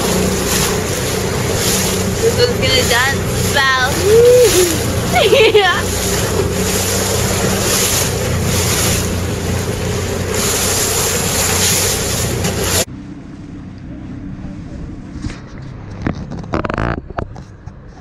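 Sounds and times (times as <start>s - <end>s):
wind buffeting microphone: 0.0s - 12.9s
boat motor humming: 0.0s - 18.0s
water rushing past boat: 0.0s - 18.0s.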